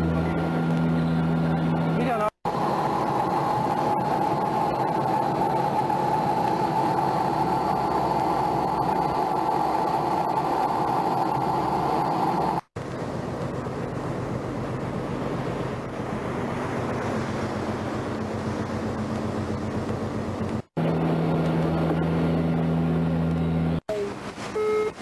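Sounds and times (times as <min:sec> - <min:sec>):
boat engine drone: 0:00.0 - 0:25.0
rushing noise: 0:02.5 - 0:19.5.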